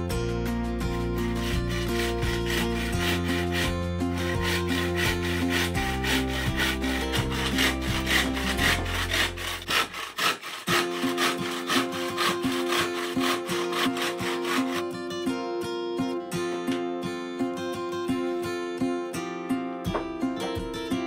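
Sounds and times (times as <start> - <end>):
background music: 0.0 - 21.0
hand saw cutting bamboo: 0.9 - 15.1.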